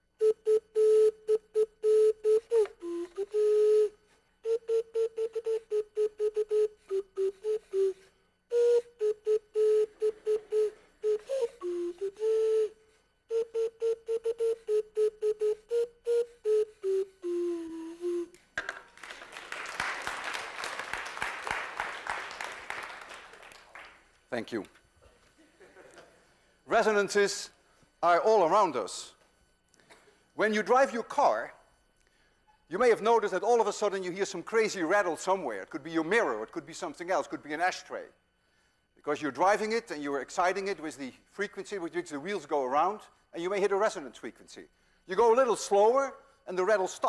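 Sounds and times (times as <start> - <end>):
slide whistle playing a tune: 0.2 - 18.5
audience applauding: 18.8 - 24.1.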